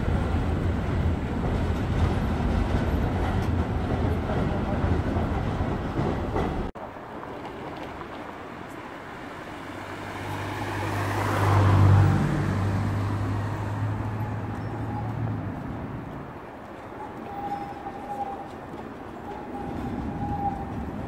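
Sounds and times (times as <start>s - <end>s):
low street hum: 0.0s - 21.0s
car driving past: 9.1s - 15.8s.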